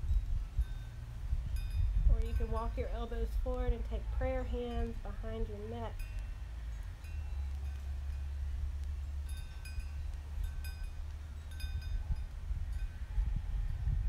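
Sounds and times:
wind chimes ringing: 0.0 - 2.8, 5.9 - 13.0
low steady rumble: 0.0 - 14.0.

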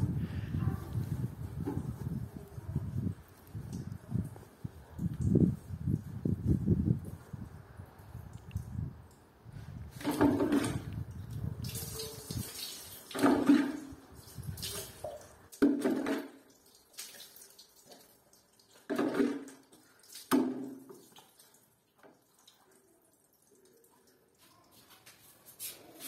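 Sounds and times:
faint water dripping: 1.0 - 10.0, 10.9 - 25.4
water splashing into bucket: 9.9 - 23.0.

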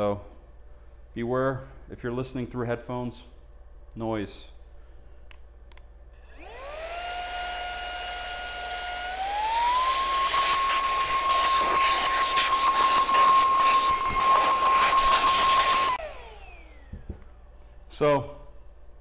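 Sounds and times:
electric air duster motor whine: 6.2 - 17.4
air blasting from nozzle: 7.8 - 16.1.

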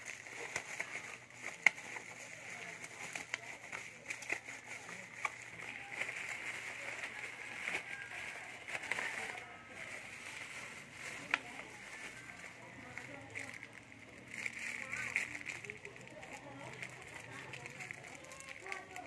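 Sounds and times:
bubble-wrap mailer crinkling: 0.0 - 19.0.

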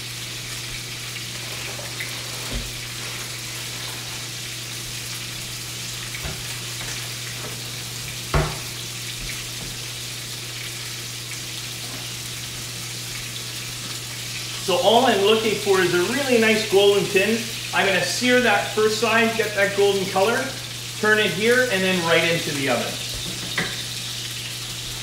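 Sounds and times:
meat sizzling in a frying pan: 0.0 - 25.0
knocks and thumps: 8.3 - 8.7.

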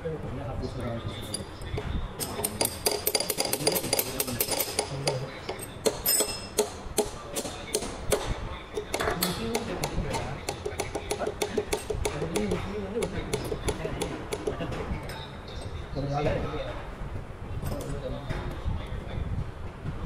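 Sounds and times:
hammer tapping metal punch: 1.8 - 14.8.

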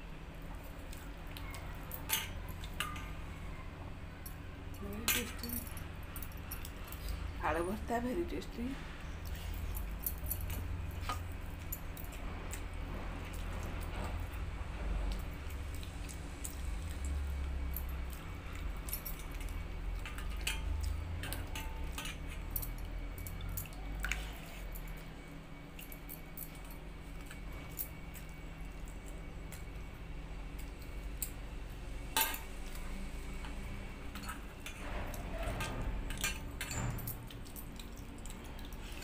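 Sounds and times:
bangles clinking and jangling: 4.2 - 8.1, 9.2 - 12.7, 16.1 - 29.9, 34.1 - 39.0.

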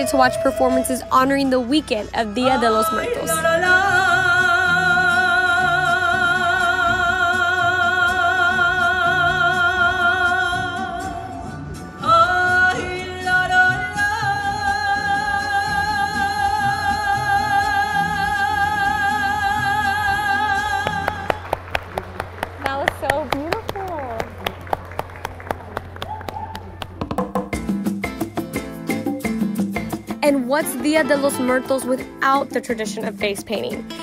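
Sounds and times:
woman singing with vibrato: 0.0 - 21.4.

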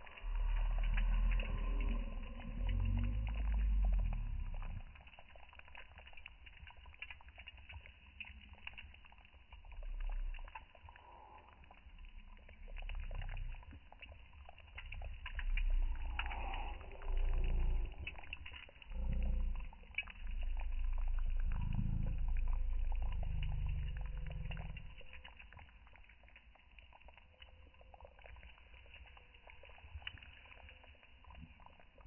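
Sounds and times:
low rumbles: 0.0 - 5.3, 14.8 - 26.0
stew simmering: 0.0 - 32.0
wood fire crackling: 0.0 - 32.0.

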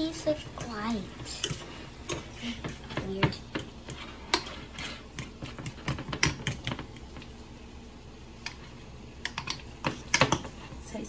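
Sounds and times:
utensil scraping a saucepan: 0.0 - 6.4.

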